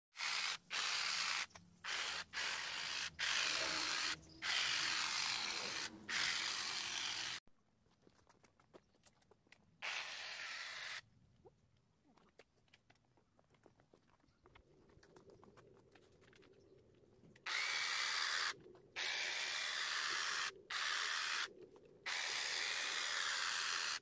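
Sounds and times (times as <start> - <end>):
hedge trimmer clipping leaves: 0.1 - 7.4, 17.5 - 21.5.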